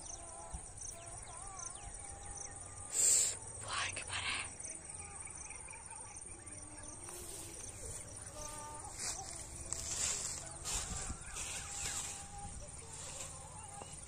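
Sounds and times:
wind rumble on microphone: 9.7 - 14.0.

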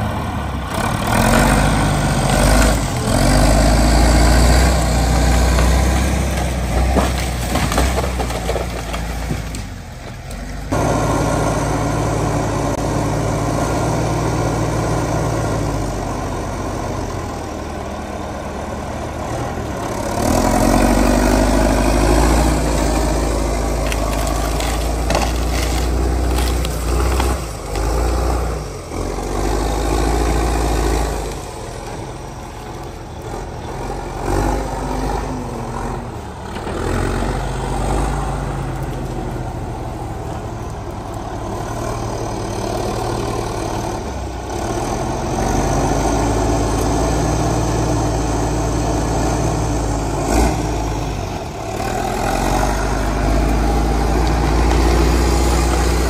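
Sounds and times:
diesel engine working: 0.0 - 56.0
wood and brush cracking: 4.3 - 10.6, 19.8 - 29.8.

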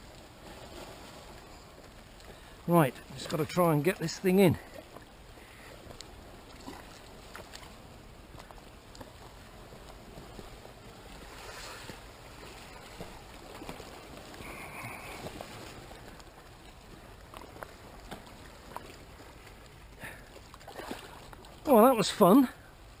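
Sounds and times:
sea water lapping among rocks: 0.0 - 23.0
faint clicks: 5.9 - 6.1.

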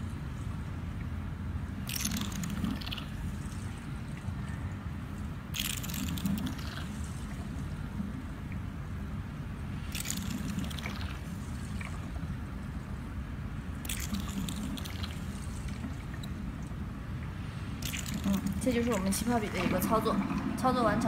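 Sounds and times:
wet slurping suction: 5.6 - 7.6, 9.8 - 12.1, 13.8 - 16.1, 17.6 - 21.0.

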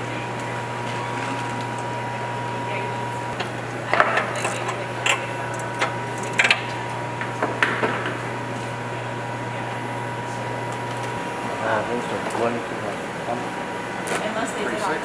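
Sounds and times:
room ventilation hum: 0.0 - 15.0.

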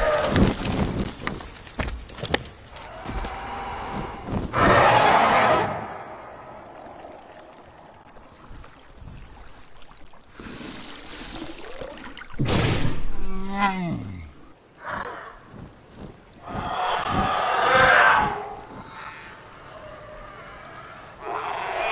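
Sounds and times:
water pouring and splashing: 0.0 - 3.4, 6.6 - 14.7.

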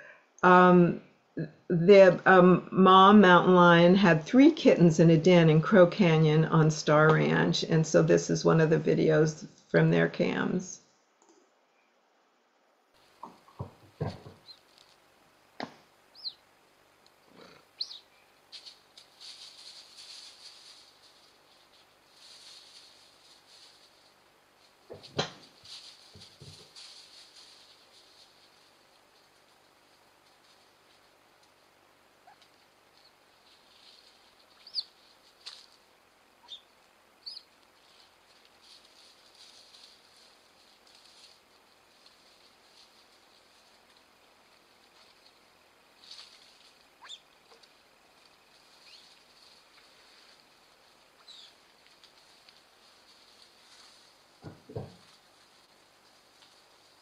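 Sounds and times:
faint high hiss: 5.5 - 57.0
knocks and rustles: 13.0 - 15.0, 24.7 - 29.5, 51.8 - 56.7
high arched chirps: 16.1 - 16.4, 17.8 - 18.1, 36.4 - 37.5, 47.0 - 47.4, 48.8 - 49.1, 51.2 - 51.6.

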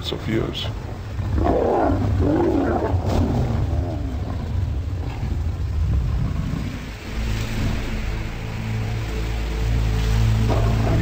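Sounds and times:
lions growling and snarling: 1.1 - 7.7.

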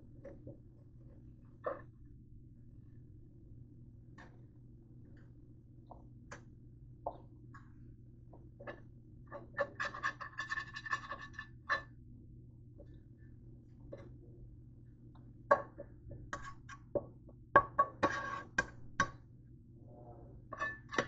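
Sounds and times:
steady low hum: 0.0 - 21.0
utensil scraping frying pan: 9.5 - 11.8, 17.9 - 18.7, 20.6 - 21.0.

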